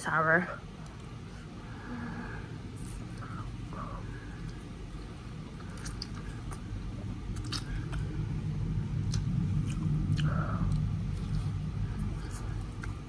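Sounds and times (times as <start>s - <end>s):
low background rumble: 0.0s - 13.0s
wet mouth clicks: 5.6s - 6.6s, 7.4s - 8.0s
chewing and sucking noodles: 5.6s - 8.2s, 8.9s - 13.0s.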